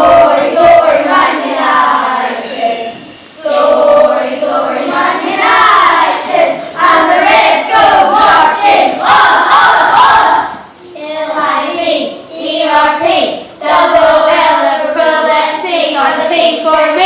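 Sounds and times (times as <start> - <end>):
children singing together: 0.0 - 17.0.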